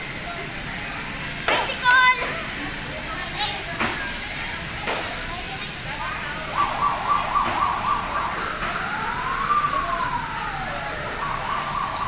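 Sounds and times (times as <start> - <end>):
siren warbling and wailing: 6.4 - 12.0.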